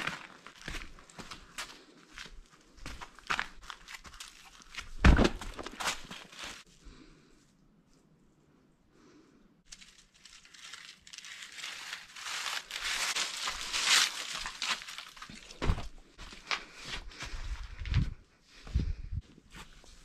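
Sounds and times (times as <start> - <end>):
footsteps crunching through dry leaves: 0.0 - 4.9, 9.7 - 16.5
heavy thudding steps: 15.6 - 16.5.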